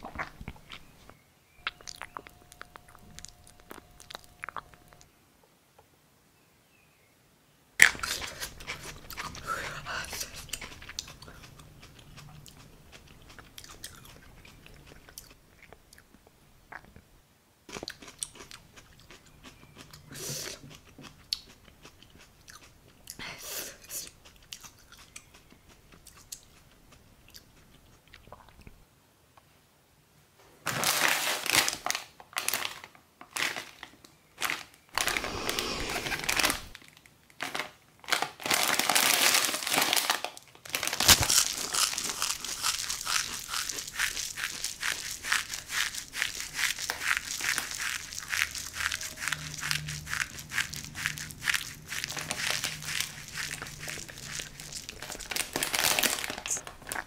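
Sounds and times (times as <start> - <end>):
crunching and chewing: 0.0 - 5.1, 7.8 - 17.0, 17.7 - 23.2, 23.8 - 28.8, 34.4 - 57.0
plastic wrapper crinkling: 30.7 - 57.0.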